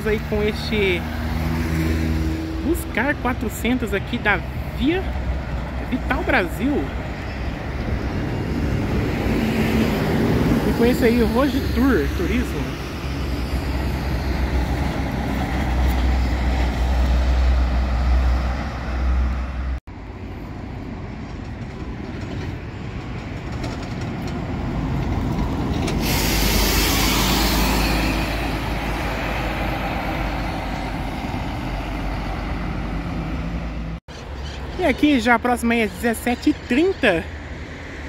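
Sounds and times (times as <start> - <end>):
diesel engines rumbling: 0.0 - 38.0
air brakes hissing: 25.9 - 28.4.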